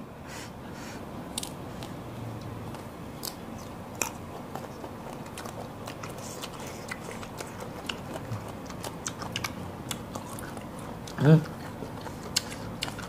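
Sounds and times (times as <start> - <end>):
crunchy biting and chewing: 2.7 - 13.0.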